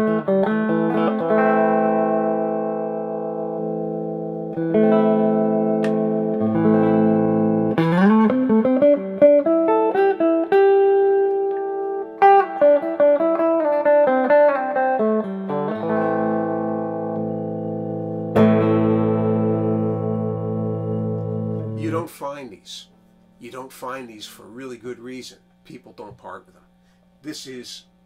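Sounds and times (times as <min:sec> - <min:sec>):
electric guitar playing: 0:00.0 - 0:23.6.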